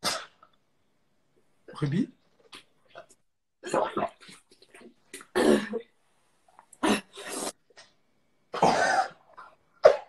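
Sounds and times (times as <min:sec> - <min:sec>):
person coughing and gagging: 0:05.3 - 0:05.9, 0:08.5 - 0:10.0.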